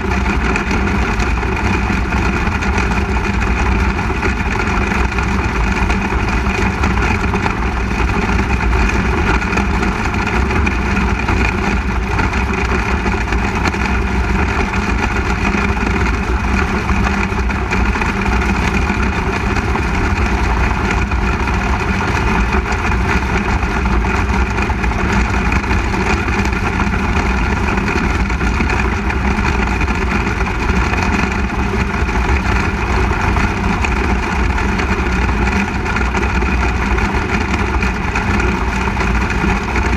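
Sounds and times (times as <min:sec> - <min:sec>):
race car engine running: 0:00.0 - 0:39.9.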